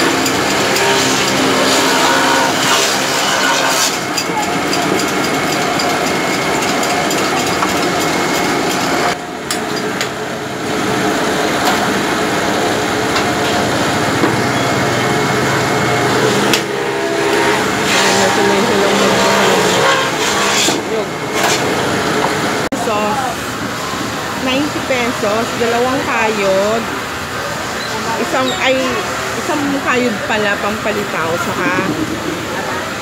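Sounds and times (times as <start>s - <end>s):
machine motor running: 0.0s - 22.7s
busy market noise: 0.0s - 33.0s.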